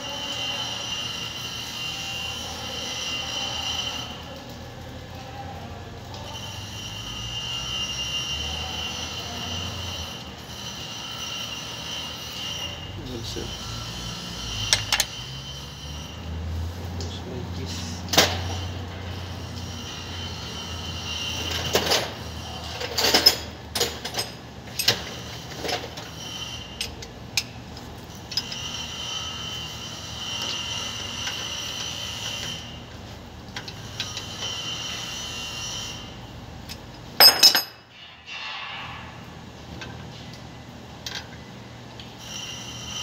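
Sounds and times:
metal tools knocking: 37.2 - 38.0
loud metal clank: 37.2 - 39.4.

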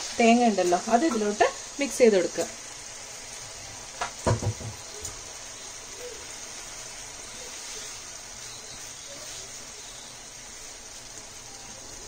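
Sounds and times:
chicken sizzling in a pan: 0.0 - 12.0
utensil knocking against pan: 4.0 - 4.8.

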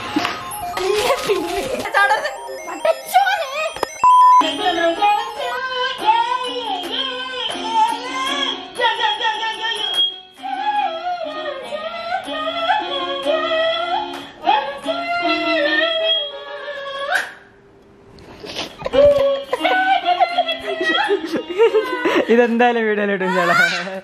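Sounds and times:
keyboard held notes: 0.0 - 7.4
woman singing into microphone: 4.4 - 17.2, 18.9 - 22.2.

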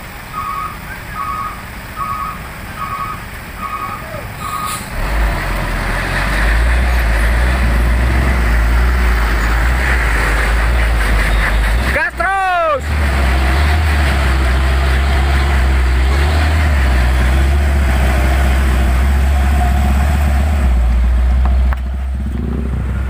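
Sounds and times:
diesel truck engine running hard: 0.0 - 23.0
wheels spinning on road: 13.0 - 23.0.

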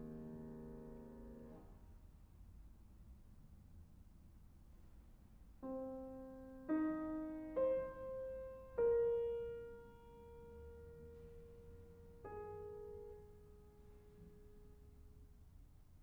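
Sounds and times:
piano playing single notes: 0.0 - 1.6.

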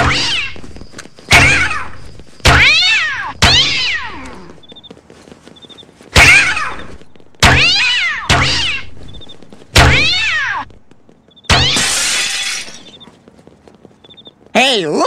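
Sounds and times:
cat yowling screech: 2.6 - 4.5, 6.2 - 6.9, 7.6 - 8.9, 9.9 - 10.6
glass shattering: 11.5 - 13.0.

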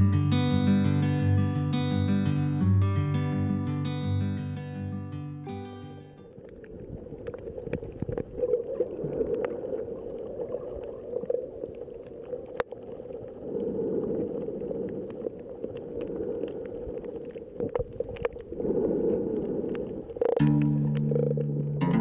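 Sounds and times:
muffled underwater rush: 6.2 - 21.8
sharp clicks and crackles: 6.2 - 21.9.

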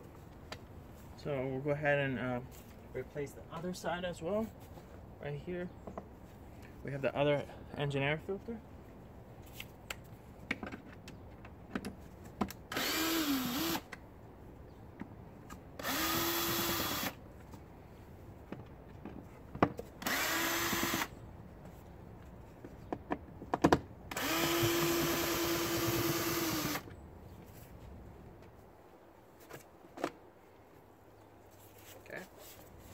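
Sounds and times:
cordless drill whining: 12.7 - 13.8, 15.8 - 17.2, 20.0 - 21.1, 24.1 - 26.9.

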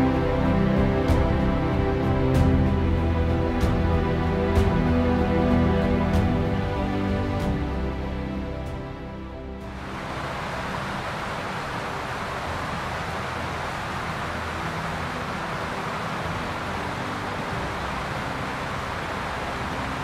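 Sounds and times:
river rapids roaring: 9.6 - 20.0.

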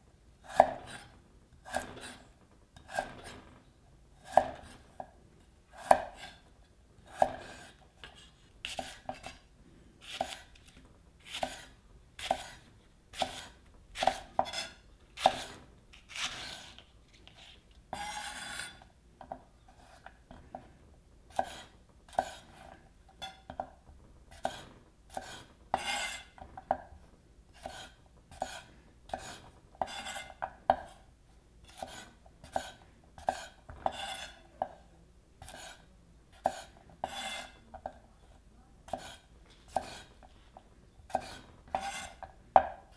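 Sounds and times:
knife chopping on cutting board: 0.4 - 2.2, 2.8 - 3.4, 4.2 - 5.1, 5.7 - 6.4, 7.1 - 9.4, 10.0 - 16.8, 17.9 - 18.8, 21.3 - 23.7, 24.3 - 26.9, 27.6 - 31.0, 31.7 - 34.8, 35.4 - 35.8, 36.4 - 38.0, 38.9 - 40.1, 41.1 - 42.9.

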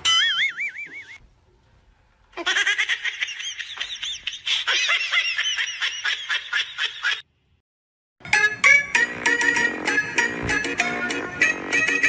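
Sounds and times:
high-pitched laughter: 2.4 - 7.2.

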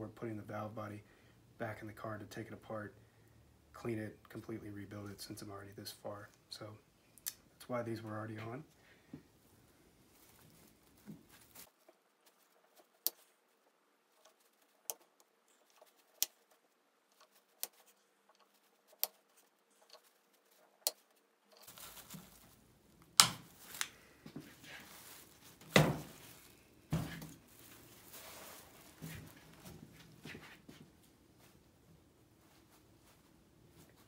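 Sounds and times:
rustling: 9.2 - 34.0.

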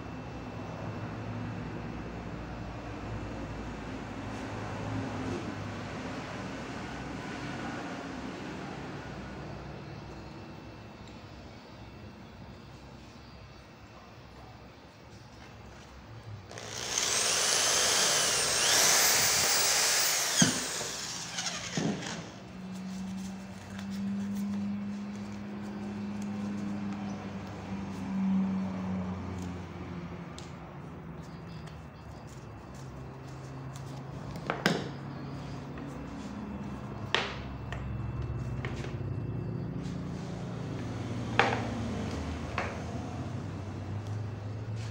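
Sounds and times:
electric drill motor whine: 16.4 - 22.8.

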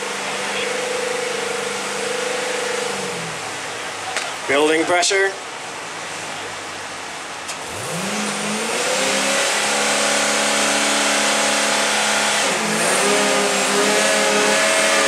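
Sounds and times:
engine running at raised revs: 0.0 - 4.0, 7.6 - 15.0.

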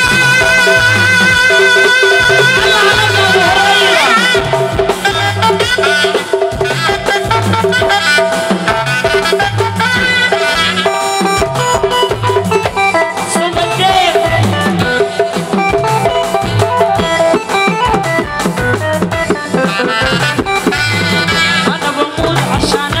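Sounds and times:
drum and percussion beat: 0.0 - 23.0
electronic keyboard melody: 0.0 - 23.0.

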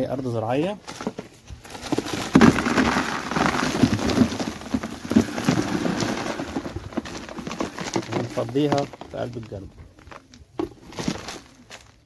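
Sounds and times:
soil clods pouring into plastic bucket: 1.6 - 9.7.

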